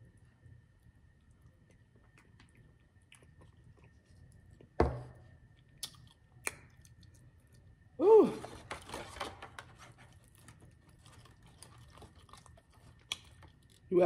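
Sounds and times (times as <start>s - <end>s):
close chewing with mouth clicks: 1.1s - 4.8s, 5.6s - 7.8s, 10.1s - 13.9s.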